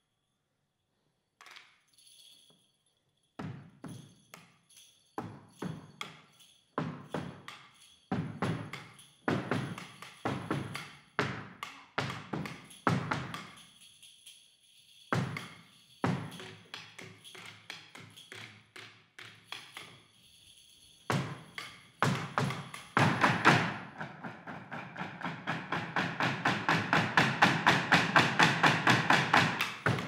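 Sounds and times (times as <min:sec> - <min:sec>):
faint jingling ring: 0:00.0 - 0:23.9
percussive strikes ringing: 0:21.0 - 0:30.0.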